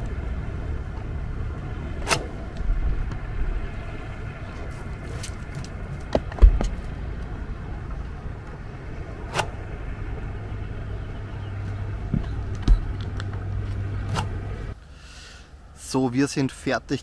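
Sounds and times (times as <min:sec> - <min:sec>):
wind rumbling on microphone: 0:00.0 - 0:14.8
heavy thumps: 0:06.1 - 0:06.8.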